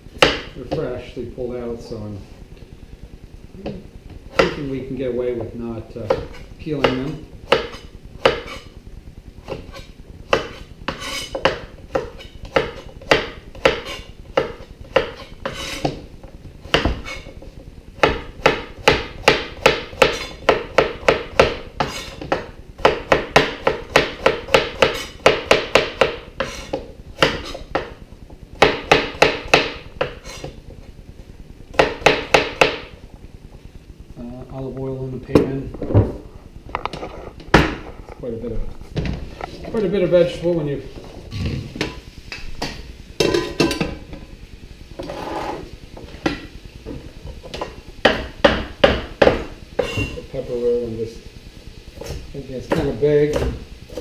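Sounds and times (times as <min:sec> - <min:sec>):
knife chopping on cutting board: 0:00.2 - 0:00.5, 0:06.0 - 0:08.6, 0:09.5 - 0:16.0, 0:16.6 - 0:17.3, 0:18.0 - 0:28.0, 0:28.6 - 0:30.5, 0:31.8 - 0:32.9, 0:47.6 - 0:50.1.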